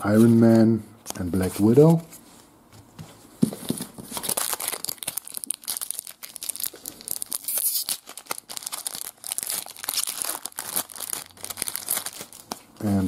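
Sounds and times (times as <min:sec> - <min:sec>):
foil wrapper tearing and crinkling: 0:04.2 - 0:12.7.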